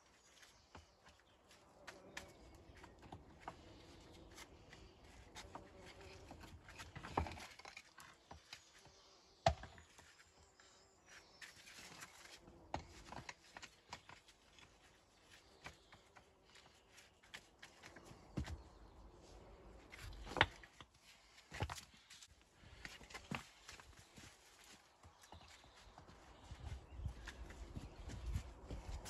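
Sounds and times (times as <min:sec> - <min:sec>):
stones knocking and clicking: 0:06.7 - 0:08.7, 0:20.0 - 0:20.9.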